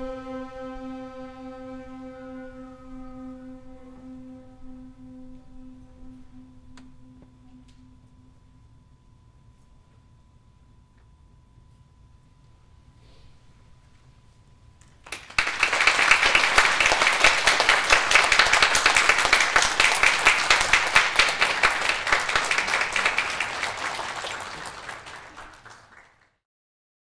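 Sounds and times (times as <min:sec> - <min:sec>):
audience applause: 0:15.0 - 0:26.4.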